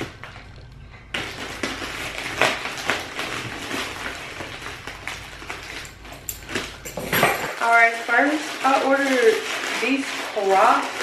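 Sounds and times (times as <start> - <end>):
plastic bag crinkling: 0.0 - 11.0
scissors cutting plastic: 1.1 - 6.8.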